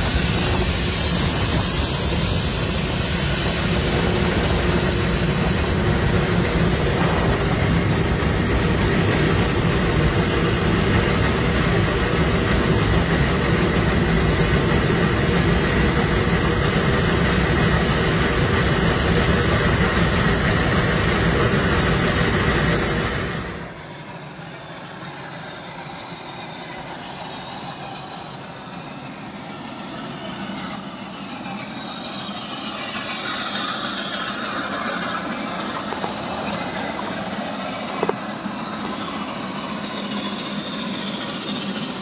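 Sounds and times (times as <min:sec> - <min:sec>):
steam locomotive exhaust and wheels: 0:00.0 - 0:42.0.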